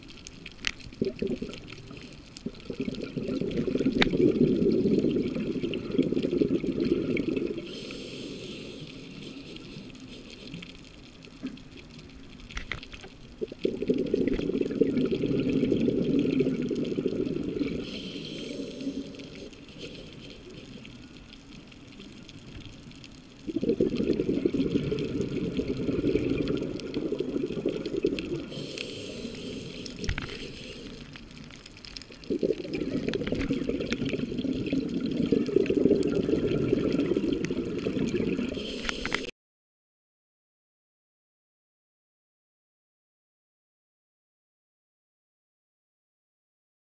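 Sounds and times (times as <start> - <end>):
underwater bubbles rushing: 0.0 - 12.5, 13.1 - 39.3
faint clicks: 38.6 - 39.3.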